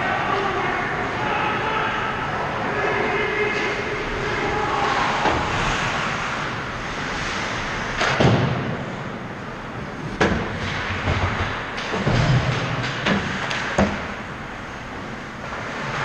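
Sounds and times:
skates scraping ice: 0:03.7 - 0:09.0, 0:15.4 - 0:16.0
hockey sticks and puck knocking: 0:10.1 - 0:14.2.

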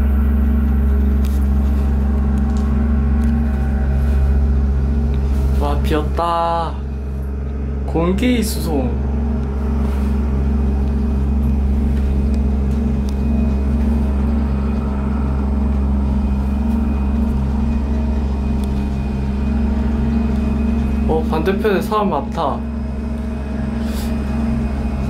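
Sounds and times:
low mechanical hum: 0:00.0 - 0:25.0.

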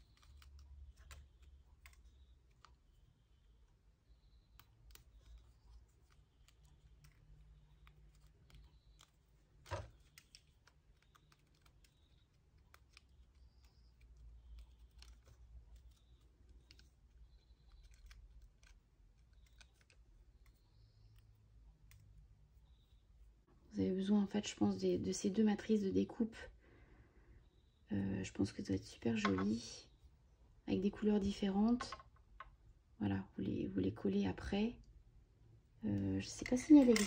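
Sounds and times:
paper clicks and ticks: 0:00.0 - 0:03.5, 0:04.4 - 0:22.2.

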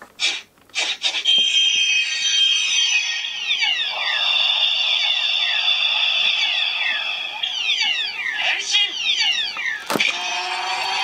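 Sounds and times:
toy electronic sound effect: 0:01.2 - 0:11.0
high shimmering tone: 0:01.3 - 0:09.4
falling electronic chirps: 0:01.3 - 0:11.0.

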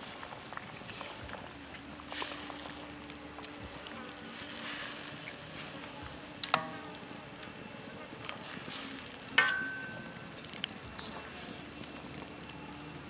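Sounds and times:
ladle stirring soup in wok: 0:00.0 - 0:12.3
ladle clanking against wok: 0:06.4 - 0:07.1, 0:09.4 - 0:10.3.

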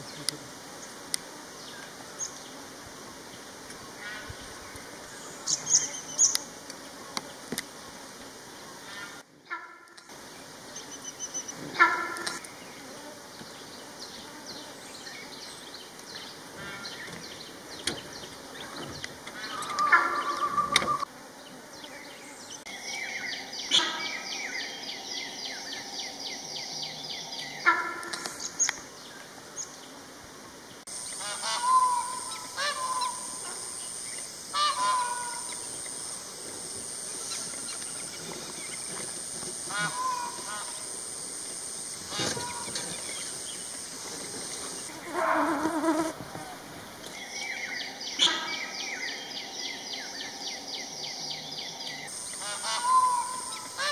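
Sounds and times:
high pulsing insect buzz: 0:00.0 - 0:53.9
honking animal calls: 0:19.6 - 0:21.1, 0:31.2 - 0:33.2, 0:52.4 - 0:53.9.

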